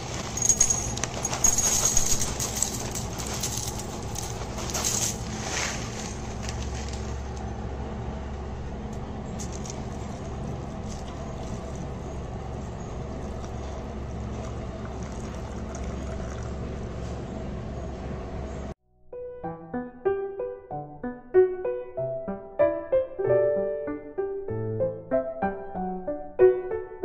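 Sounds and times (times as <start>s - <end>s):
low rumble with a hum: 0.0s - 18.8s
milk pouring: 13.2s - 16.6s.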